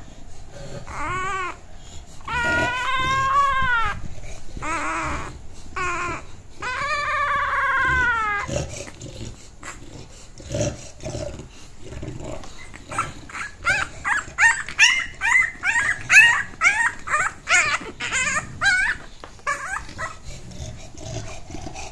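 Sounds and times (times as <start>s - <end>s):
puppy howling whines: 0.0s - 8.6s, 12.8s - 20.3s.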